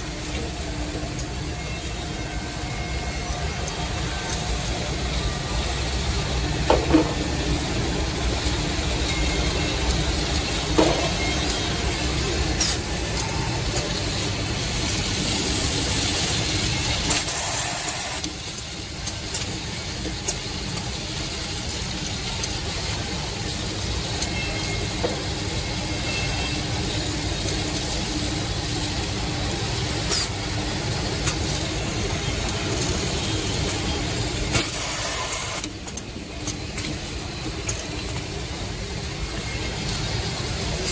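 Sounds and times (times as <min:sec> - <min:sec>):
hissing burst: 0:34.5 - 0:35.7.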